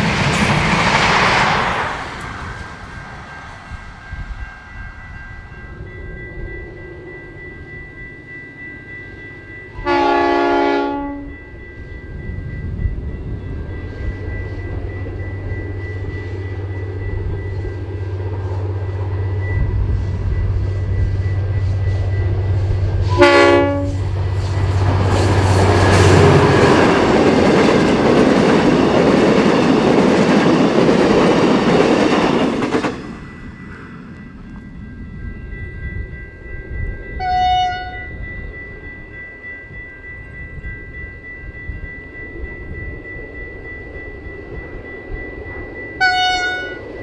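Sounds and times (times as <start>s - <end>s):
train wheels clickety-clack: 0.0s - 4.7s, 13.8s - 34.8s
diesel locomotive engine drone: 0.0s - 47.0s
locomotive horn blast: 9.8s - 11.3s, 23.0s - 24.0s, 46.0s - 46.8s.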